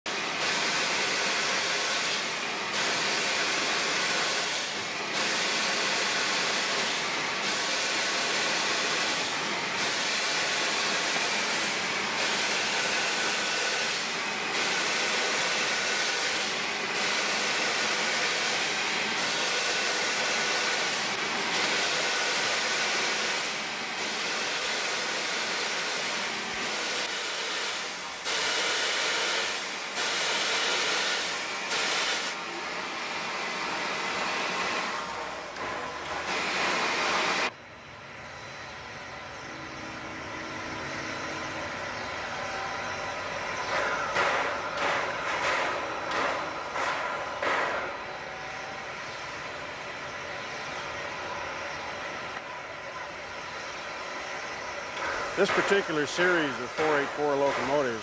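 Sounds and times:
steam locomotive venting steam: 0.1 - 58.0.

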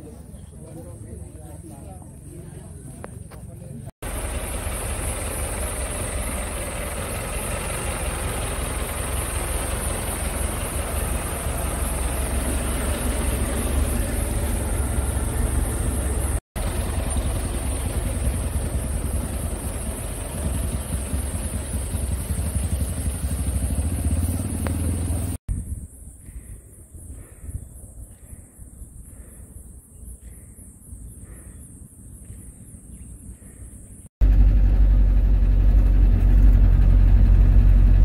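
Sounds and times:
jeep engines idling: 4.0 - 25.4.

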